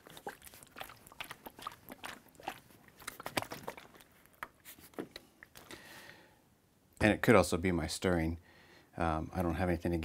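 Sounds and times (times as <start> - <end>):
water sloshing in jug: 0.0 - 5.7
plastic jug crackling: 0.0 - 5.8.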